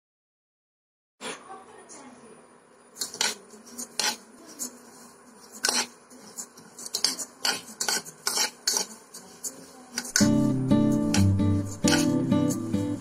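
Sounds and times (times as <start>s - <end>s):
spoon scraping metal pot: 3.0s - 13.0s.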